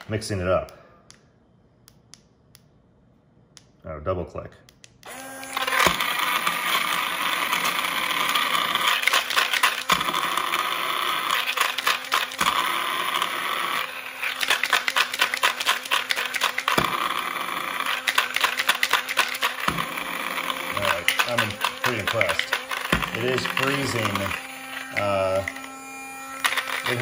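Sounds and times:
blender motor whirring: 5.0s - 27.0s
frozen pieces rattling in plastic jar: 20.7s - 25.6s, 26.4s - 27.0s.

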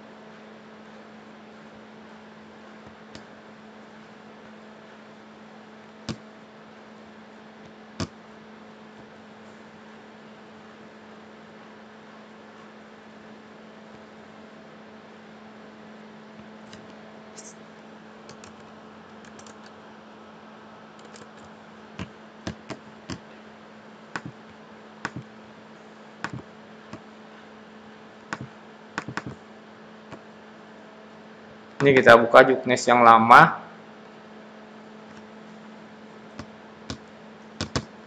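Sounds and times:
faint electrical hum: 0.0s - 38.0s
computer mouse clicking: 18.3s - 19.8s, 21.0s - 23.2s, 24.2s - 25.3s, 26.2s - 27.0s, 28.3s - 29.4s, 36.4s - 37.9s.

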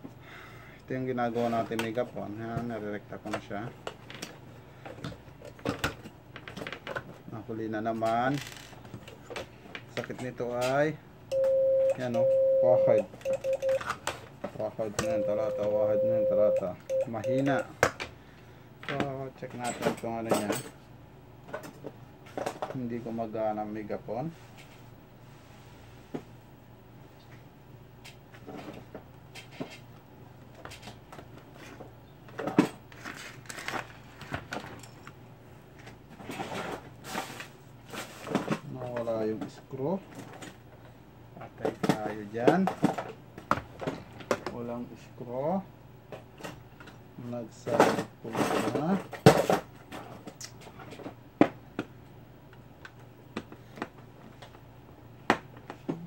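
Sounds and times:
steady low hum: 9.0s - 19.6s.

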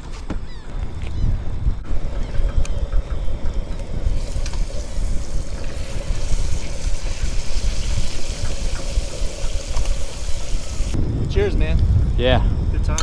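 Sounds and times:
wind buffeting microphone: 0.0s - 13.0s
burner tone: 0.7s - 13.0s
fish sizzling in a skillet: 4.2s - 11.0s.

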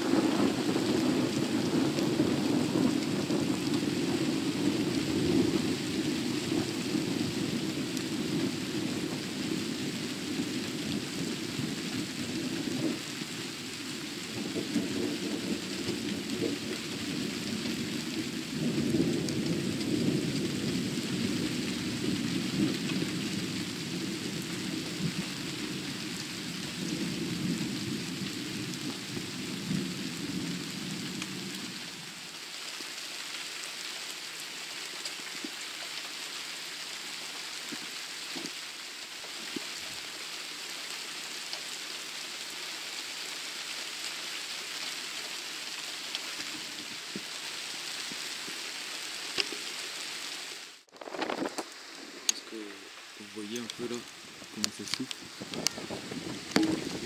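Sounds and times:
thunder rumbling: 0.0s - 31.9s, 50.9s - 57.0s
heavy rain: 0.0s - 57.0s
water drips ticking: 37.6s - 38.6s.

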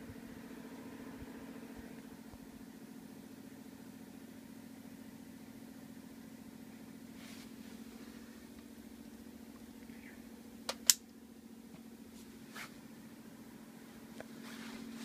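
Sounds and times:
steady low hum: 0.0s - 15.0s
cord switch clicks: 10.7s - 11.1s.

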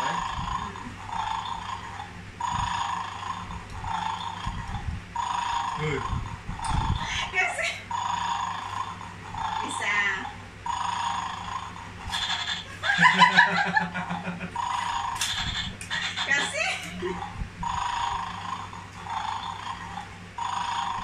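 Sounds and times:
electronic toy dog snoring: 0.0s - 21.0s
people laughing: 12.8s - 14.6s.

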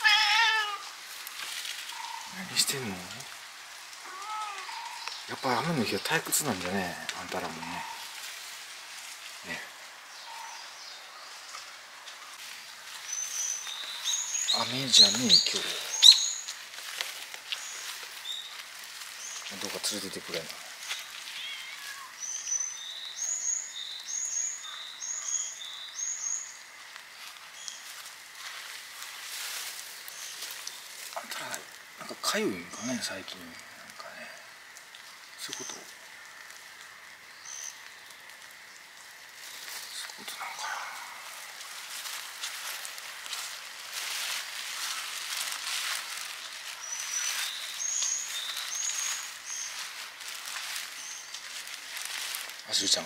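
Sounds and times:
footsteps on muddy ground: 11.2s - 23.1s, 26.8s - 31.9s, 39.2s - 53.0s
bird whistling: 15.4s - 16.4s.

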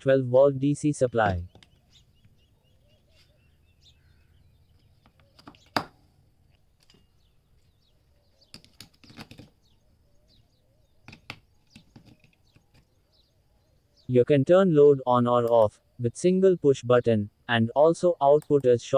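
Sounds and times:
faint bird chirps: 0.0s - 18.5s
clicks and rattles: 8.5s - 9.6s.

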